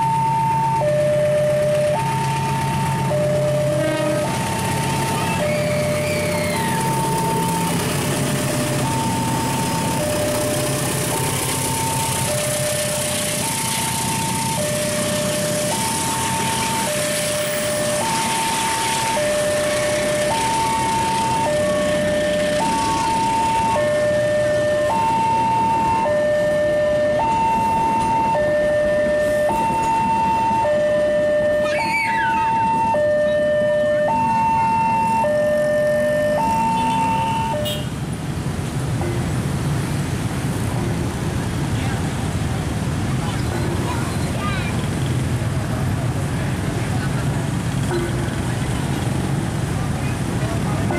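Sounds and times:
train passing: 0:00.0 - 0:31.7, 0:32.3 - 0:50.9
two-tone crossing alarm: 0:00.0 - 0:38.0.

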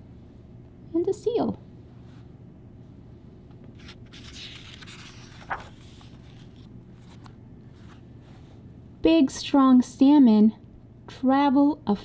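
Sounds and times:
paper page turning: 0:03.7 - 0:08.0.

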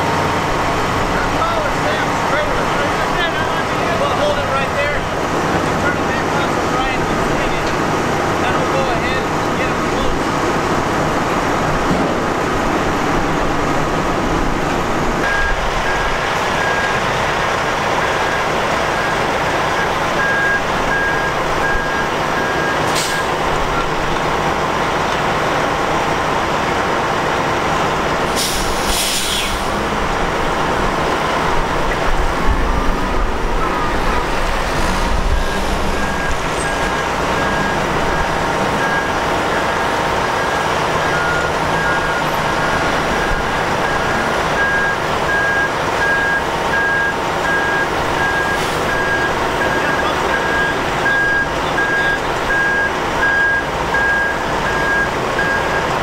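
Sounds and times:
diesel engine running: 0:00.0 - 0:56.0
warning alarm beeping: 0:15.2 - 0:17.2, 0:35.5 - 0:56.0
air hiss: 0:28.3 - 0:29.8.

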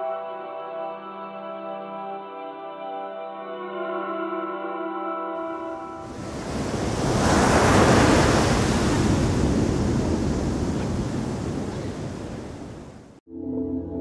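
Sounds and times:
surf breaking on shore: 0:05.6 - 0:13.2.

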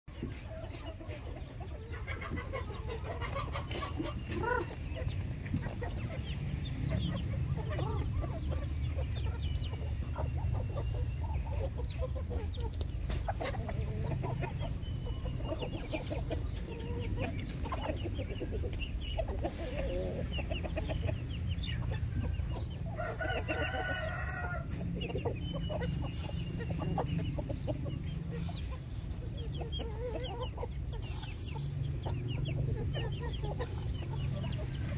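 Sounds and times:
chickens clucking and squabbling: 0:00.1 - 0:34.9
rooster crowing: 0:22.9 - 0:24.7.

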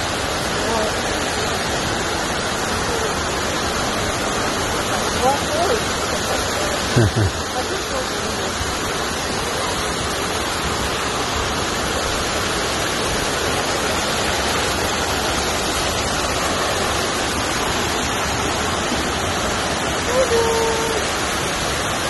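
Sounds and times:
waterfall roaring: 0:00.0 - 0:22.0.

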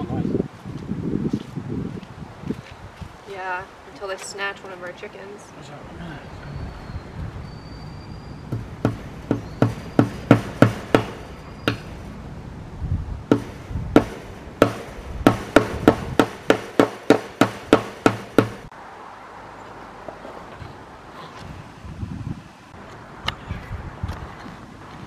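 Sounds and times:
hammer striking staples into wood: 0:08.5 - 0:11.9, 0:13.3 - 0:18.7.

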